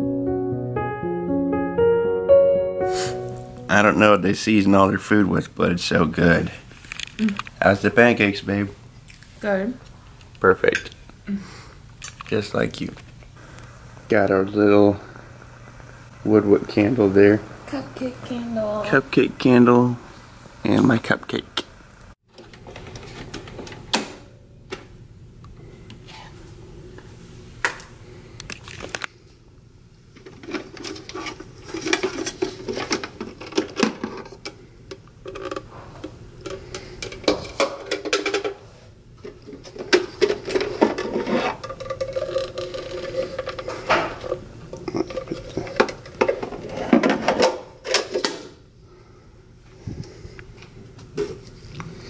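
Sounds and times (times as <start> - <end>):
clatter of mugs and capsules: 30.2 - 34.6, 35.2 - 38.6, 39.2 - 48.4.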